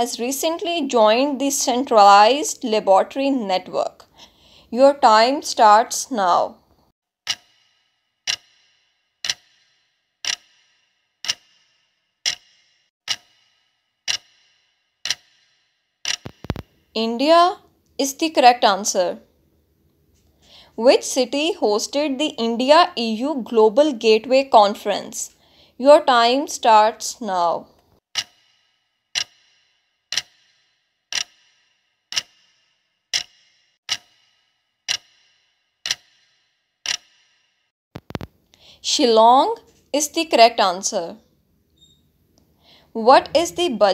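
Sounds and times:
clock ticking: 7.2 - 16.7, 28.1 - 37.3, 43.0 - 43.9.

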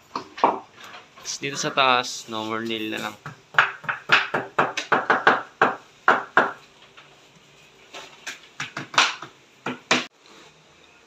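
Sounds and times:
hammer tapping a nail: 3.2 - 6.6.

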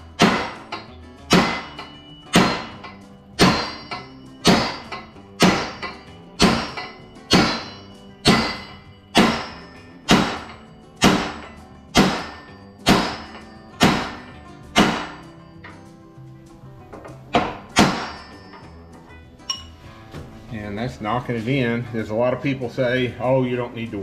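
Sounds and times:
hammer blows on brass drift: 0.2 - 15.4.

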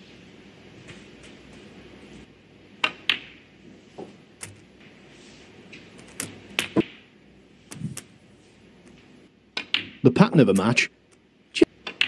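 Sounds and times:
snooker balls clicking: 2.8 - 3.4, 8.8 - 11.2, 11.8 - 12.0.

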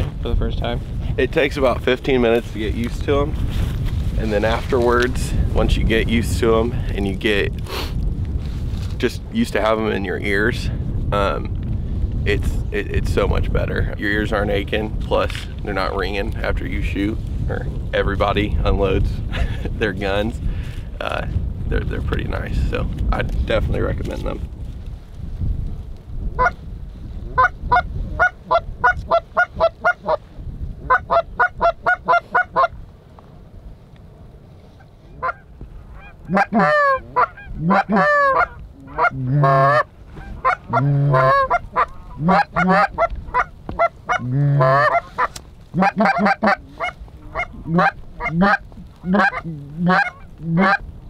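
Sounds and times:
goose clucks: 27.4 - 30.2, 30.9 - 32.7, 35.2 - 50.8
goose honks: 30.9 - 32.7, 35.2 - 50.8
deep moaning calls: 36.0 - 43.0, 44.1 - 45.0.

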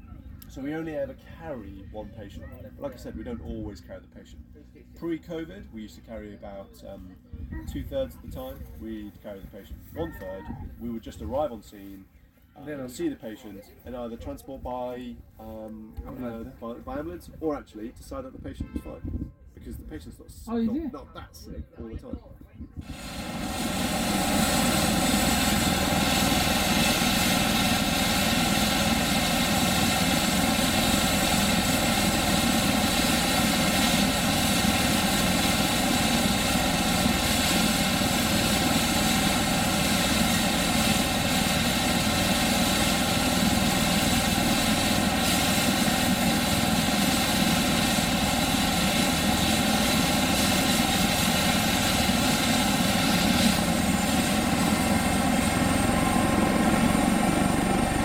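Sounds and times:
helicopter engines whining: 0.0 - 11.9, 22.8 - 58.0
helicopter rotor turning: 22.8 - 58.0.

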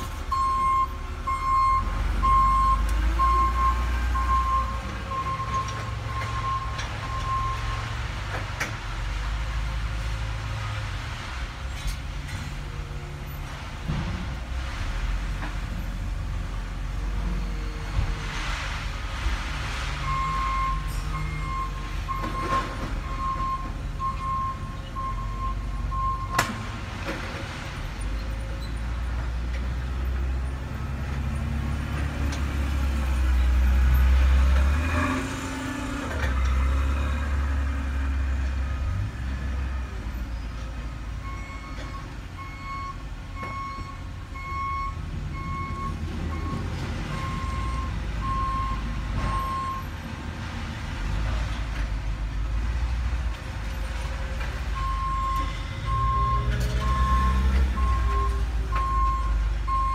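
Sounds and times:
heavy engine rumbling: 0.0 - 59.9
backup alarm beeping: 0.3 - 7.8.

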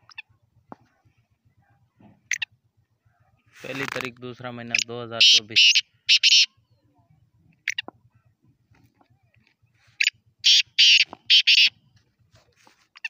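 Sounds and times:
francolin harsh calls: 4.6 - 6.8, 9.8 - 11.8.

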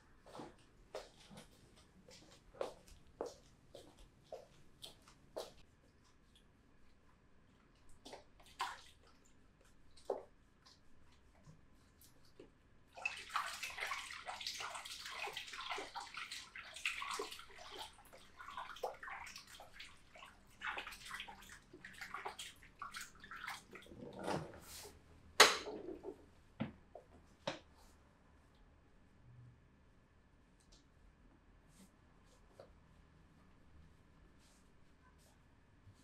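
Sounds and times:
water splashing and sloshing: 7.8 - 25.0.

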